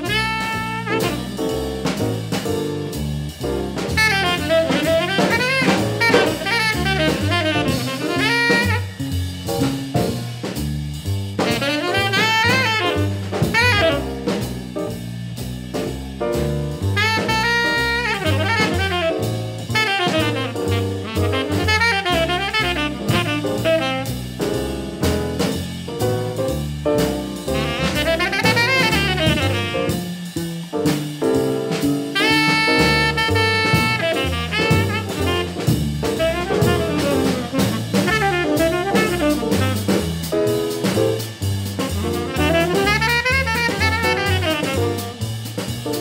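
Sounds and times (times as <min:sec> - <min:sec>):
tenor saxophone solo: 0:00.0 - 0:01.6, 0:04.0 - 0:09.2, 0:11.4 - 0:14.4, 0:16.9 - 0:24.4, 0:27.5 - 0:30.1, 0:32.1 - 0:40.2, 0:41.8 - 0:45.2
jazz drums: 0:00.0 - 0:46.0
walking bass: 0:00.0 - 0:46.0.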